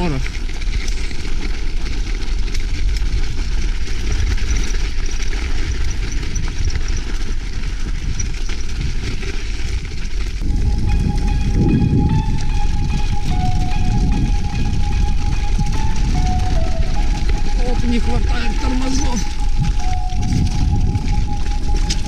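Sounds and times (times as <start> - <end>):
bike tyres rolling over snow: 0.0 - 22.0
wind buffeting microphone: 0.0 - 22.0
music: 10.5 - 22.0.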